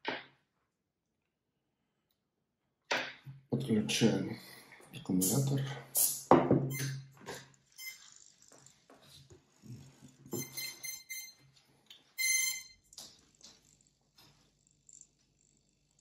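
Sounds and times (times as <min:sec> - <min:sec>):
short electronic beeps: 0:06.7 - 0:07.0, 0:07.8 - 0:08.1, 0:10.4 - 0:11.4, 0:12.2 - 0:12.8.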